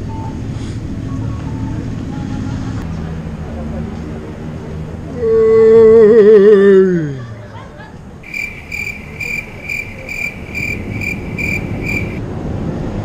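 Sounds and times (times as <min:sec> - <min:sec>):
traffic noise: 0:00.4 - 0:05.3, 0:08.0 - 0:13.0
crossing signal beeps: 0:08.3 - 0:12.2.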